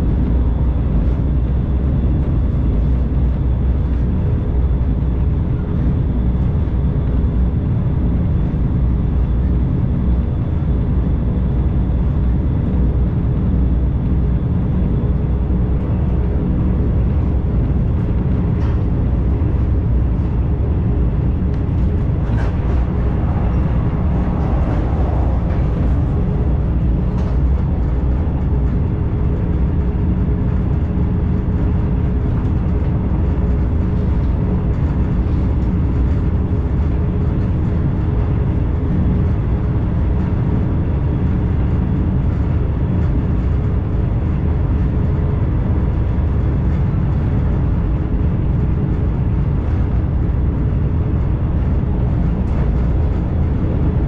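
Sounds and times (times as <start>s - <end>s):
faint steady hum: 0.0s - 54.0s
train wheels rumbling: 13.7s - 54.0s.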